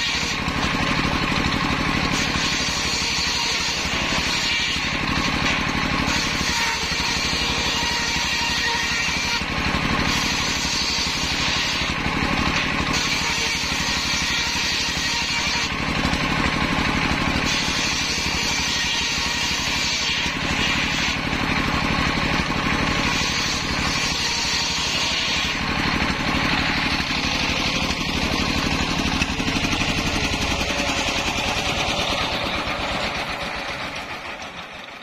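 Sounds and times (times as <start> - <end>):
engine running with fast pulse: 0.0 - 35.0.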